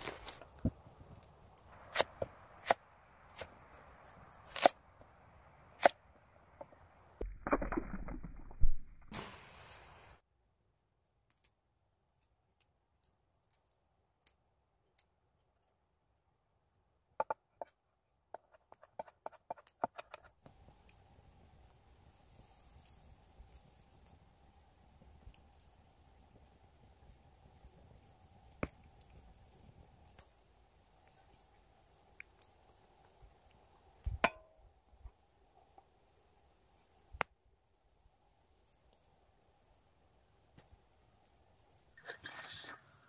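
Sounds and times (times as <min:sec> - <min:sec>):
faint steady hiss: 0:09.1 - 0:10.2, 0:20.4 - 0:43.0.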